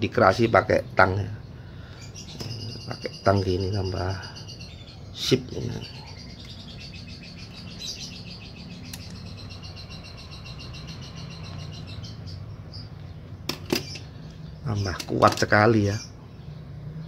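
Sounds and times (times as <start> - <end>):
small animal chirping: 1.9 - 13.2.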